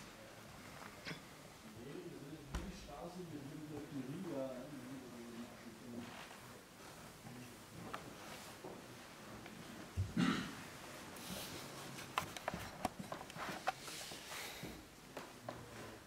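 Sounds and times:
clothing rustling: 3.8 - 10.0, 10.6 - 14.9.

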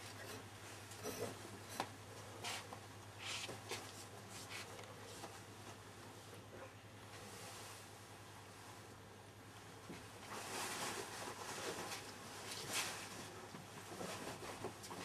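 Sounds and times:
rustling: 10.2 - 15.0.

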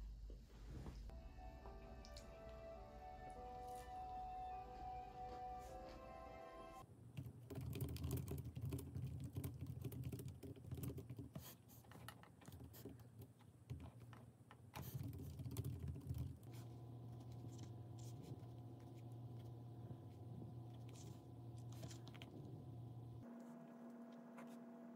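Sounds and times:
soft music: 1.1 - 6.8
low steady hum: 16.0 - 24.9.

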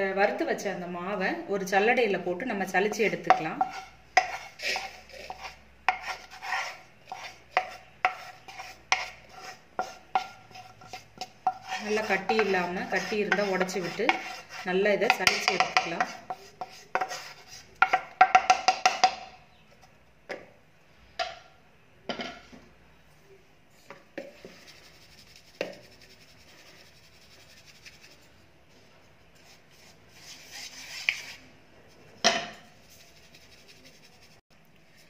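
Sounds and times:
wooden spatula knocking metal pan: 2.9 - 4.9, 9.8 - 14.4, 15.0 - 17.2, 17.8 - 19.4.

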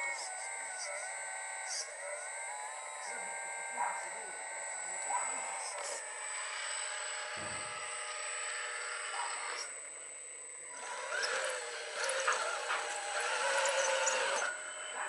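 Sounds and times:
hydraulic pump whining: 5.1 - 15.0.

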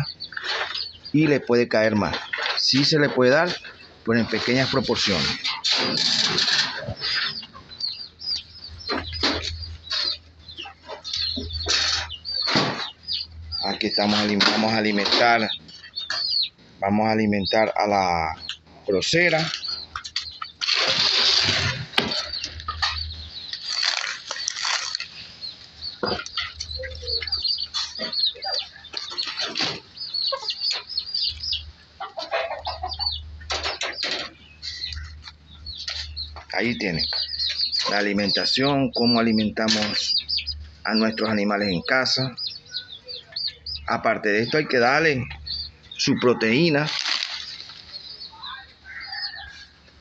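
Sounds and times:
chickens clucking: 0.0 - 50.0
lettuce leaves crackling: 22.5 - 27.3, 46.4 - 48.1.

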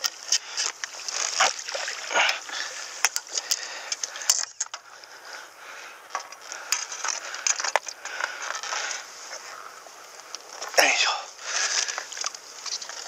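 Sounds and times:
light water wash: 0.9 - 3.4.

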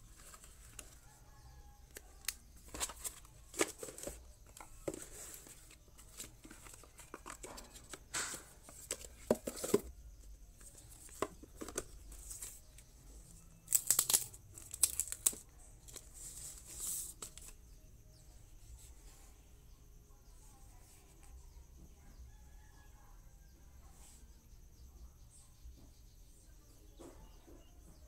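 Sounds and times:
smartphone packaging handled: 1.9 - 9.9, 10.6 - 12.8, 13.7 - 17.6
plastic sleeve crinkling and tearing: 13.7 - 16.1.

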